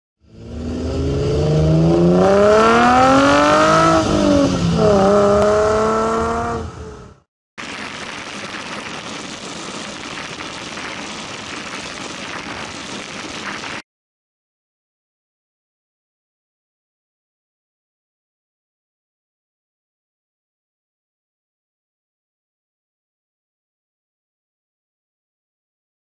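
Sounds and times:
car engine accelerating hard: 0:00.2 - 0:07.2
wind and road rush: 0:00.2 - 0:13.8.

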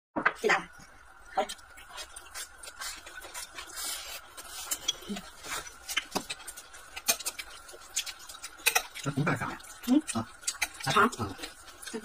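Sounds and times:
chewing: 0:01.3 - 0:12.0
chopsticks clicking on dishes: 0:07.0 - 0:10.9.

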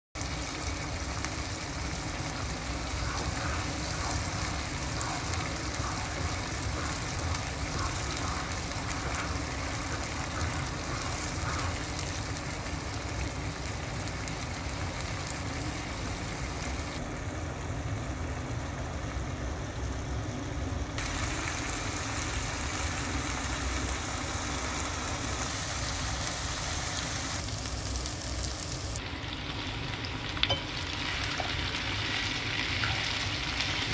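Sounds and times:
paste sizzling in oil: 0:21.0 - 0:33.9.

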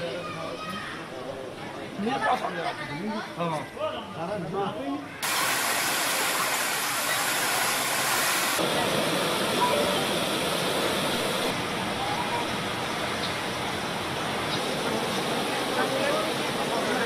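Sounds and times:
floodwater rushing: 0:05.2 - 0:17.0.

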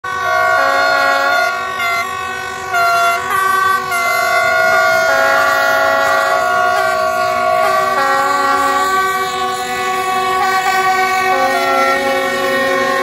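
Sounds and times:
locomotive air horns: 0:00.0 - 0:13.0.

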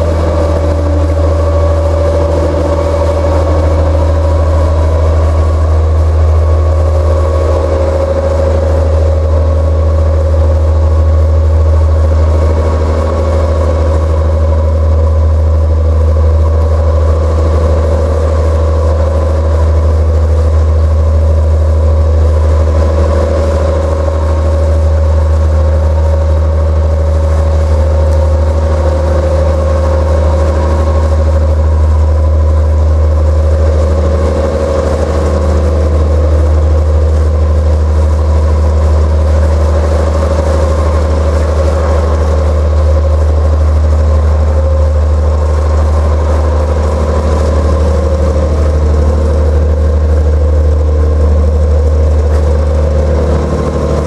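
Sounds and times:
boat engine humming: 0:00.0 - 0:54.0.

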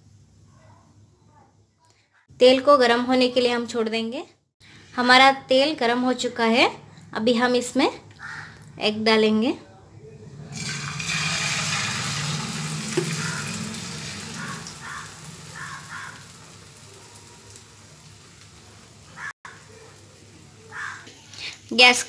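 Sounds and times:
egg sizzling in a frying pan: 0:10.6 - 0:22.0.

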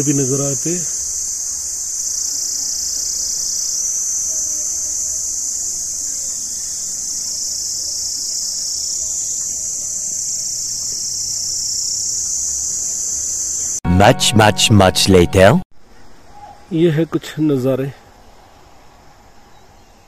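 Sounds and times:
high-pitched insect chorus: 0:00.0 - 0:13.8.

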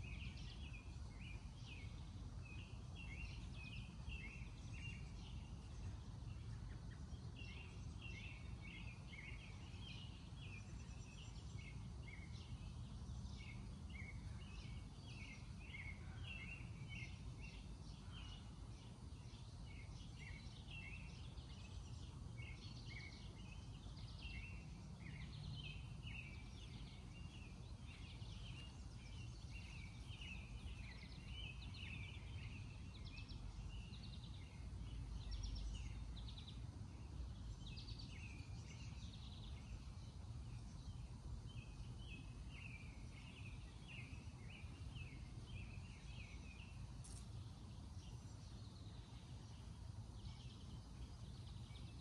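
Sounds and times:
small birds chirping: 0:00.0 - 0:52.0.

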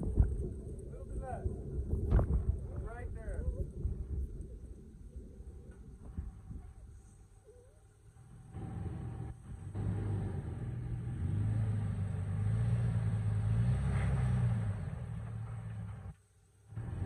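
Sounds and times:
engine running at low revs: 0:00.0 - 0:17.0.

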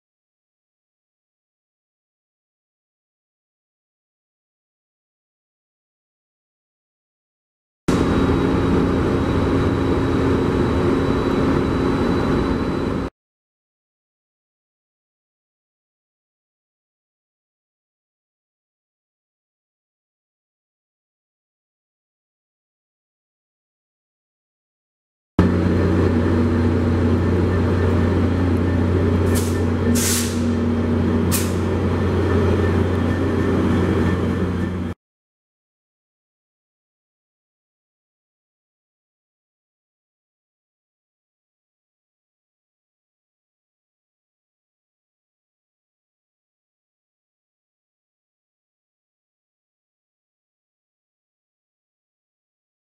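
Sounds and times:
diesel locomotives idling: 0:07.9 - 0:13.1, 0:25.4 - 0:35.0
air hisses: 0:29.3 - 0:30.5.

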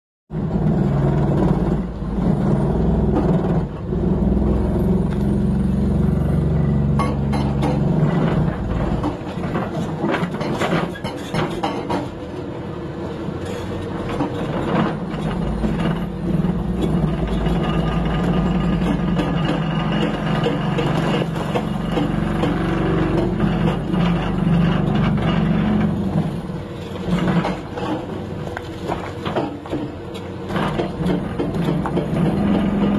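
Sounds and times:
excavator engine running: 0:00.4 - 0:32.9
hydraulic breaker hammering rock: 0:06.8 - 0:12.2, 0:14.1 - 0:26.4, 0:27.0 - 0:32.9.

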